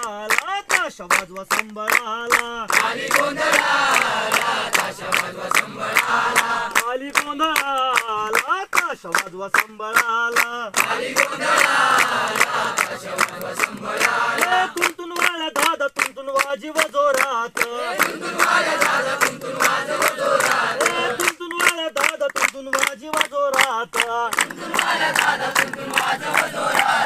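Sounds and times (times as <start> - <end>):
hands clapping in time: 0.0 - 27.0
group chanting a song: 2.3 - 7.4, 10.3 - 15.0, 17.5 - 21.4, 23.2 - 27.0.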